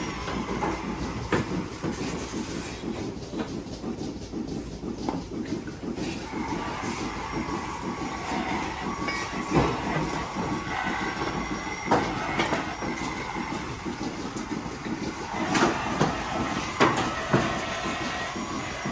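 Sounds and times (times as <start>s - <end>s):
milking machinery running: 0.0s - 18.9s
faint machine squeals: 6.4s - 13.8s.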